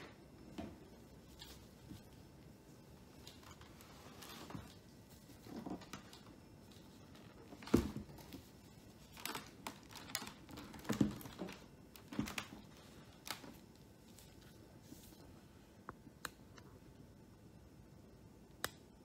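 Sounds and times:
plastic glove crinkle: 0:01.0 - 0:15.6.

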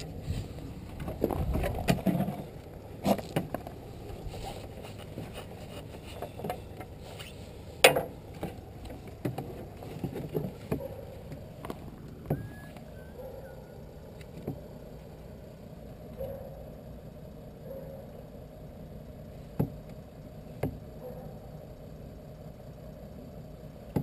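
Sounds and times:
knocks and clicks of handling: 0:07.8 - 0:12.9.

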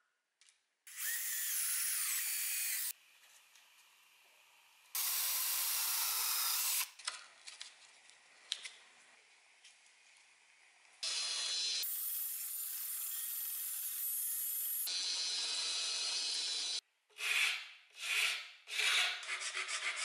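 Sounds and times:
electric drill boring wood: 0:00.9 - 0:02.9, 0:05.0 - 0:06.9, 0:11.0 - 0:12.5, 0:13.1 - 0:16.8.

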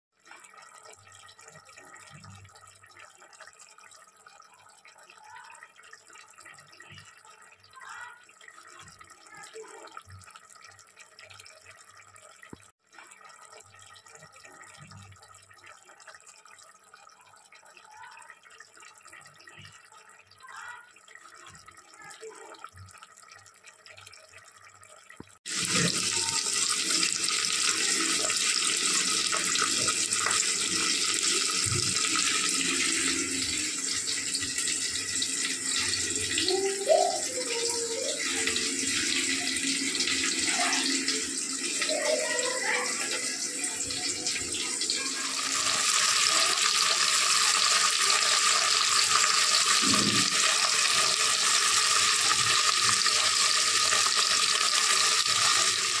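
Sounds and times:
onions sizzling in hot oil: 0:45.2 - 0:56.0.

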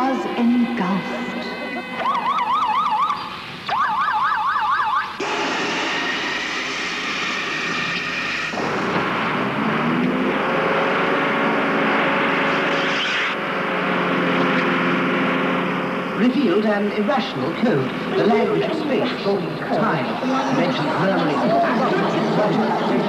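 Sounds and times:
siren wailing: 0:00.0 - 0:23.0
loud rushing noise: 0:05.2 - 0:23.0
low steady drone: 0:05.2 - 0:23.0.

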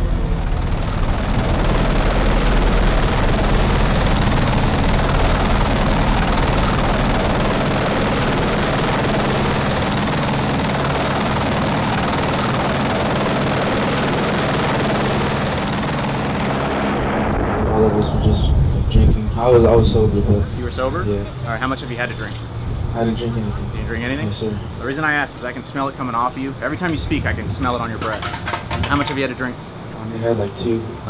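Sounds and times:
helicopter rotor throb: 0:00.0 - 0:29.9.

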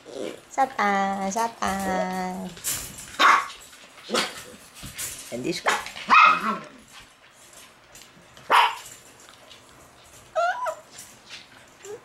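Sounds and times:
puppy barking: 0:03.2 - 0:03.5, 0:05.7 - 0:06.7, 0:08.5 - 0:08.8
puppy yelping: 0:03.2 - 0:03.5, 0:06.1 - 0:06.8, 0:10.3 - 0:10.9.

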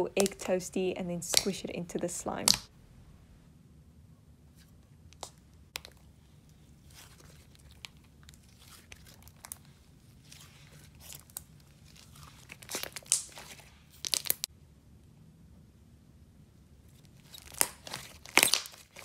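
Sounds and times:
slime sticky clicks and pops: 0:17.4 - 0:18.8.

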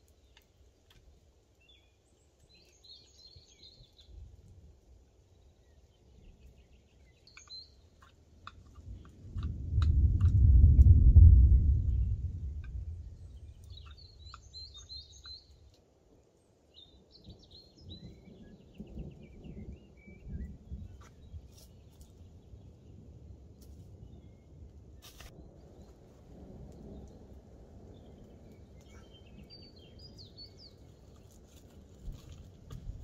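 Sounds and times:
small birds chirping: 0:00.0 - 0:09.9, 0:10.7 - 0:33.0
low rumbling background: 0:08.6 - 0:14.4.

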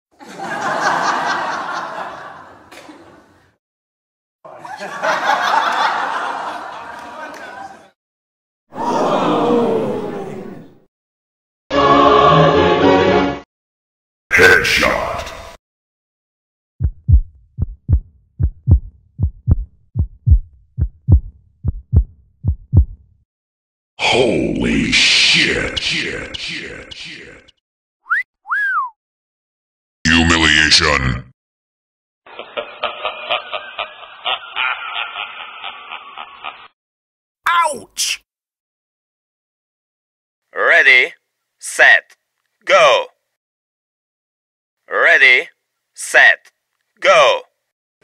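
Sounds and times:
canned crowd laughter: 0:00.2 - 0:03.4, 0:04.5 - 0:08.0, 0:32.3 - 0:36.8
heartbeat thumps: 0:16.8 - 0:23.2.

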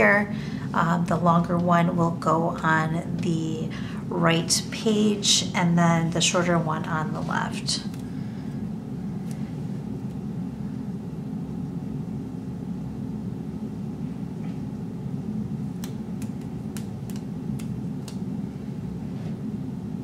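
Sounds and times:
tape ticks and taps on paper: 0:15.8 - 0:18.2.

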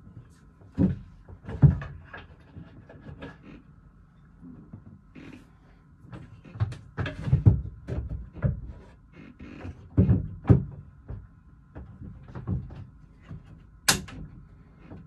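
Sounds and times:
wooden knocks and thumps: 0:00.8 - 0:03.3, 0:06.1 - 0:08.9, 0:09.6 - 0:14.3.

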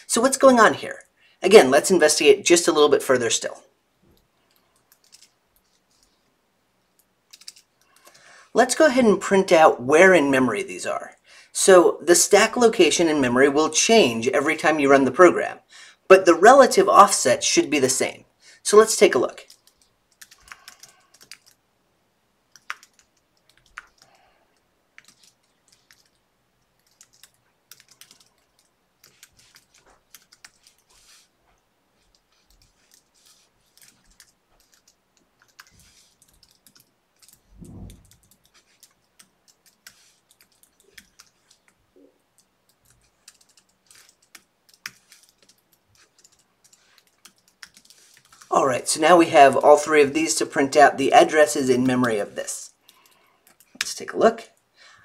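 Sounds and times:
computer keyboard keystrokes: 0:04.5 - 0:06.1, 0:07.0 - 0:08.2, 0:19.4 - 0:21.6, 0:22.5 - 0:24.1, 0:25.0 - 0:26.2, 0:26.8 - 0:30.9, 0:32.1 - 0:41.8, 0:42.4 - 0:48.5
low muffled thud: 0:37.6 - 0:38.1.

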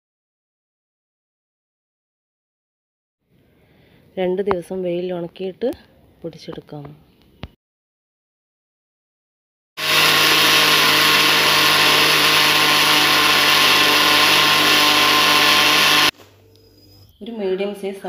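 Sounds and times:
mixer grinder motor grinding: 0:09.8 - 0:16.2.

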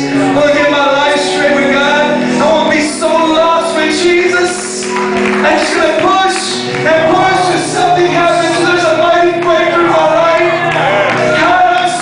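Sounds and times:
electric guitars playing: 0:00.0 - 0:12.0
person singing: 0:05.4 - 0:12.0.

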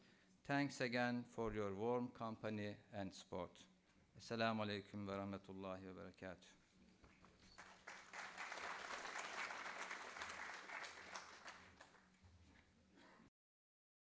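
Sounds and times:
audience applauding: 0:07.5 - 0:12.2.

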